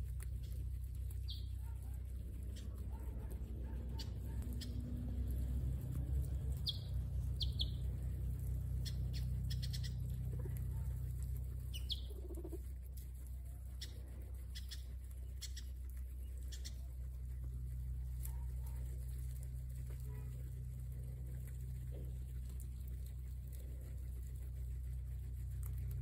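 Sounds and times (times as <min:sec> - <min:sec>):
guinea pig high chirps: 0:00.0 - 0:20.4
guinea pigs crunching grass: 0:00.0 - 0:26.0
low rumble: 0:00.0 - 0:26.0.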